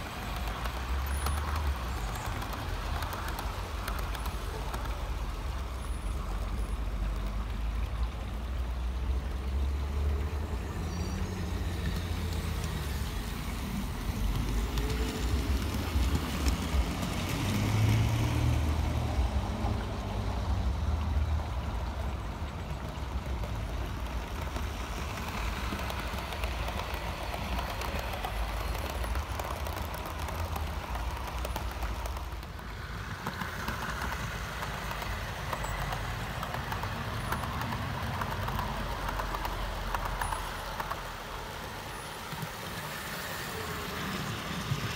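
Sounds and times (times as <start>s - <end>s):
clicking rattle of coaches: 0.0s - 5.1s, 22.7s - 42.8s.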